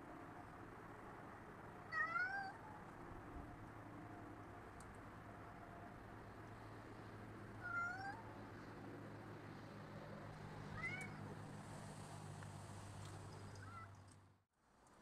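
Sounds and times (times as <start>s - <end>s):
cat meowing: 1.9s - 2.6s, 7.6s - 8.2s, 10.8s - 11.2s.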